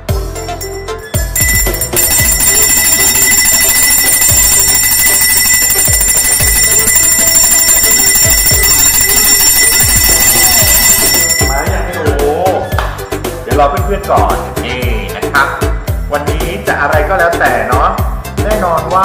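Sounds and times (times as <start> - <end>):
background music with low beat: 0.0 - 19.0
handbell ringing: 0.4 - 11.9.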